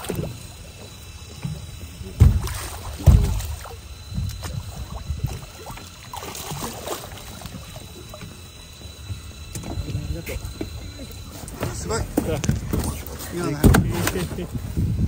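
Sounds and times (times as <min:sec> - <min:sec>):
knocks and clatter on boat: 0:00.0 - 0:15.0
heavy thumps: 0:01.4 - 0:04.5.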